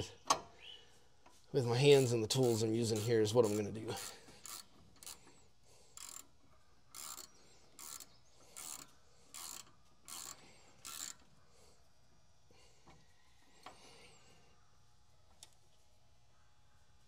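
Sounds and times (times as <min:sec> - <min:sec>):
socket ratchet clicking: 0:02.3 - 0:05.3, 0:05.9 - 0:11.3.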